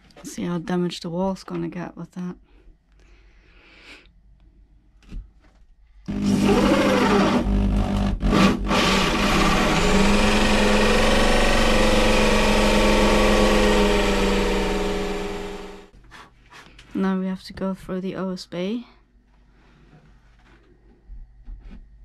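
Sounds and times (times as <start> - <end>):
electric drill cutting: 6.1 - 15.9.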